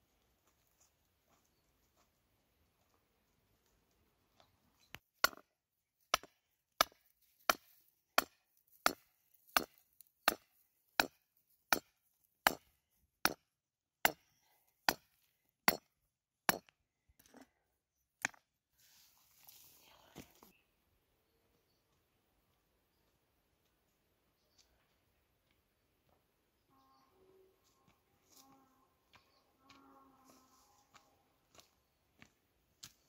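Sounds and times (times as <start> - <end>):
stone pounding stake: 5.2 - 5.5, 6.1 - 16.8, 18.2 - 18.5
soft rustle: 18.8 - 20.5.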